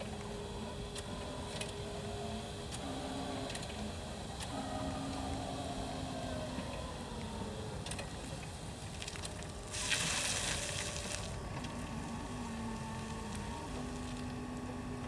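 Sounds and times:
electric forklift whine: 0:00.0 - 0:15.0
burst of hiss: 0:09.7 - 0:11.3.

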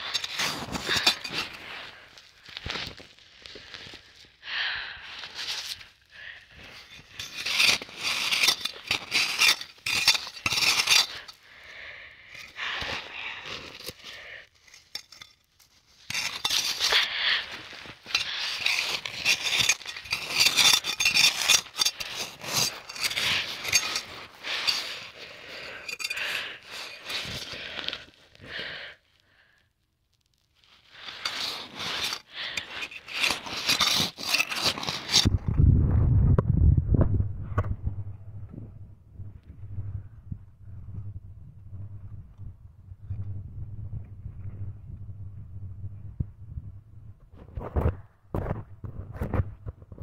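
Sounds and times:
snow scraping and crunching: 0:00.0 - 0:04.4, 0:05.0 - 0:11.4, 0:12.3 - 0:28.8, 0:30.6 - 0:35.3.

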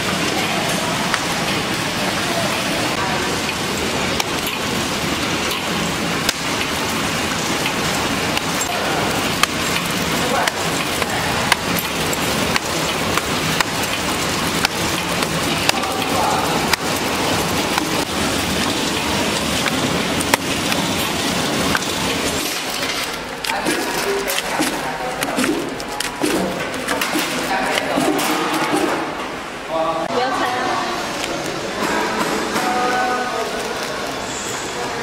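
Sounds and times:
packaging machine hiss and clatter: 0:03.4 - 0:29.1.

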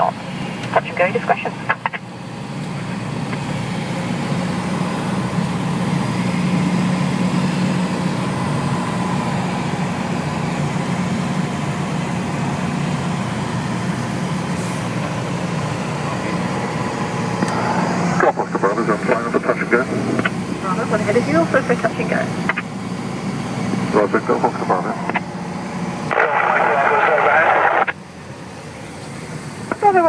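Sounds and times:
aircraft engine droning: 0:00.0 - 0:30.0
airflow rush: 0:13.8 - 0:29.7.

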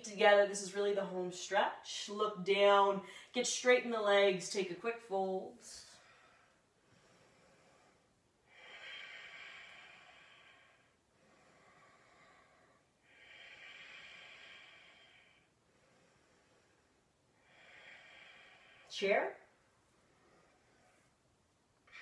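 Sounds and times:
woman breathing slowly: 0:03.0 - 0:03.4, 0:05.8 - 0:22.0.

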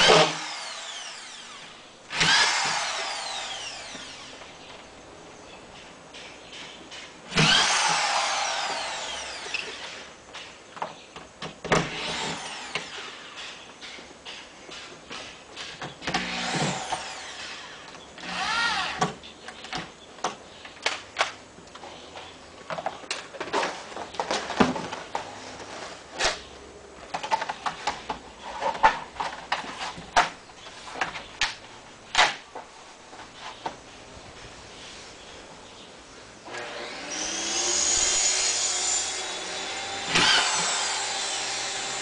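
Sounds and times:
electric drill whirring: 0:00.0 - 0:04.5, 0:07.3 - 0:10.1, 0:11.9 - 0:13.1, 0:16.1 - 0:19.0, 0:36.5 - 0:42.0.

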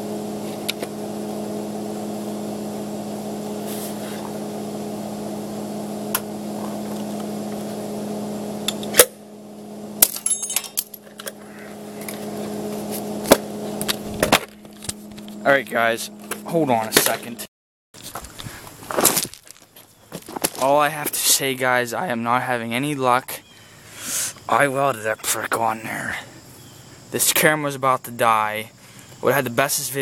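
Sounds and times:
arc welder humming: 0:00.0 - 0:17.5
metal parts clinking: 0:10.0 - 0:11.4.

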